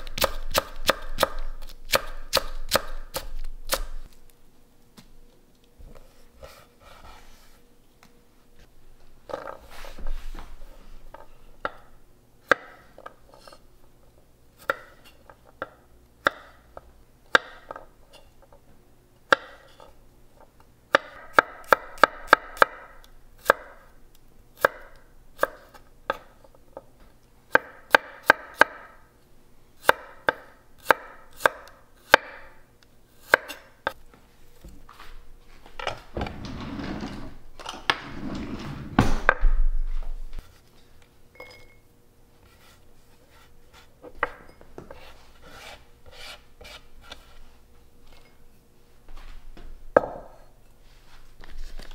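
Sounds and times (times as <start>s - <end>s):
knife chopping on wooden board: 29.8s - 32.5s.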